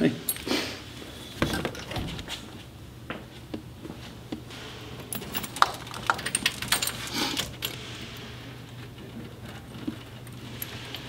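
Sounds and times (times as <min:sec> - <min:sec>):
metal bolts clinking and rattling: 0:05.0 - 0:07.8.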